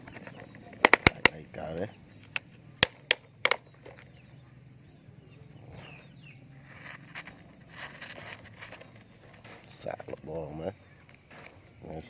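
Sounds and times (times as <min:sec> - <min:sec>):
faint bird chirps: 0:00.0 - 0:12.0
sharp clicks: 0:00.1 - 0:01.6, 0:02.2 - 0:04.0.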